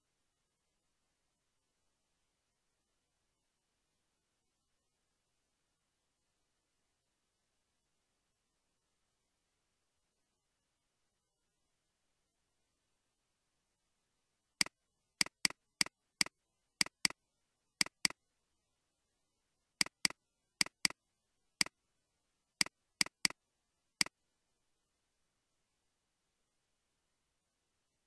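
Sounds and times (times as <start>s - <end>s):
computer mouse clicks: 14.6s - 17.2s, 17.8s - 18.2s, 19.8s - 21.0s, 22.6s - 23.4s.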